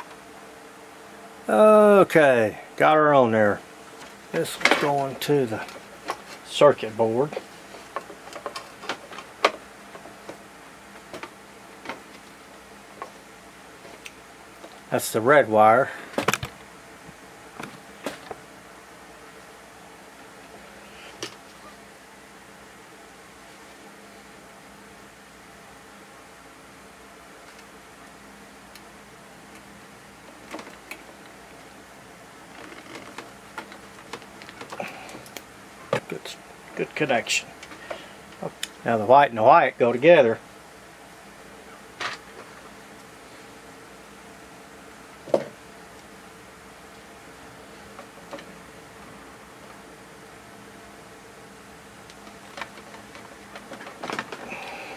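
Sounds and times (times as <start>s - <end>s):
light clicks of wires and plastic: 32.5s - 36.2s.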